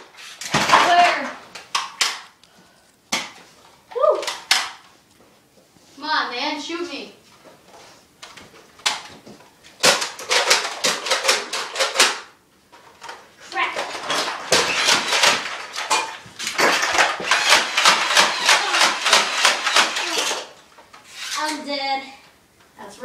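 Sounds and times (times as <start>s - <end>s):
foam-dart blaster firing: 16.6s - 20.5s.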